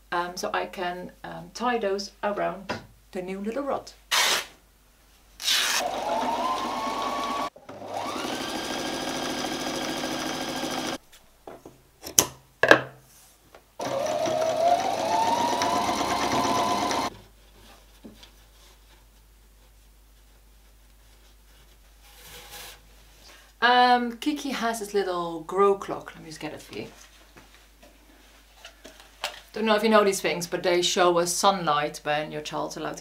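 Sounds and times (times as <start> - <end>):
sewing machine motor whirring: 5.5 - 11.0, 13.8 - 17.1.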